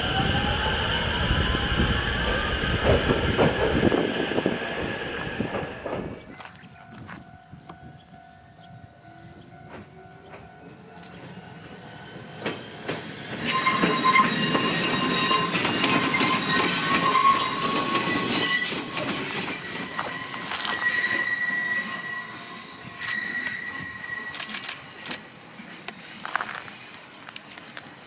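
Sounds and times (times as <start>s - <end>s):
electric train passing: 0.0s - 6.4s, 7.0s - 28.0s
wheels clicking over rail joints: 12.4s - 21.4s.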